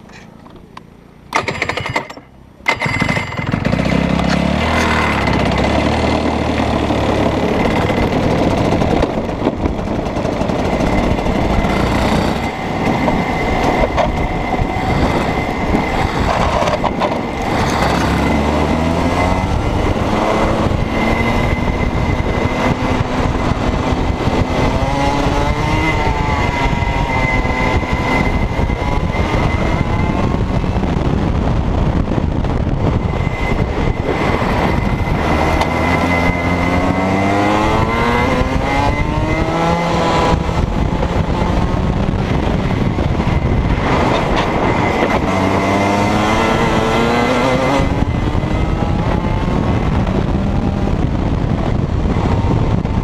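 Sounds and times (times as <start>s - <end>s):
kart engine revving: 0.0s - 53.0s.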